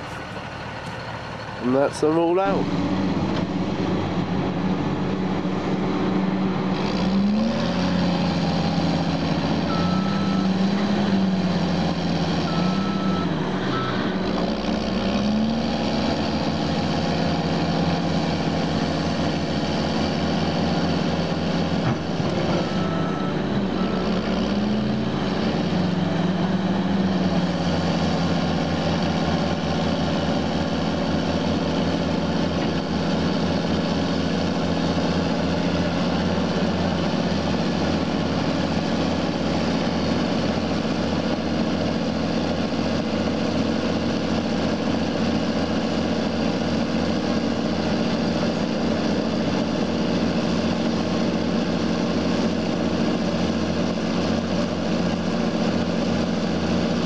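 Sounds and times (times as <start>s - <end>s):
bulldozer diesel engine revving: 0.0s - 57.0s
reverse back-up alarm beeping: 9.7s - 10.6s, 12.4s - 14.0s, 22.5s - 24.1s.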